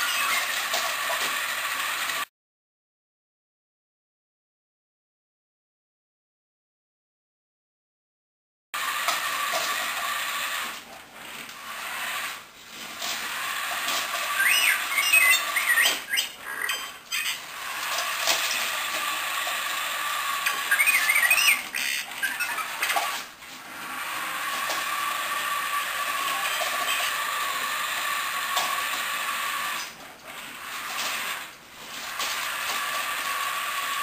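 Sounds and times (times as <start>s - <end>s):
warbling electronic beeps: 0.0s - 0.6s, 14.3s - 17.5s, 20.4s - 23.0s
toy robot motors whirring: 0.0s - 2.3s, 8.8s - 34.0s.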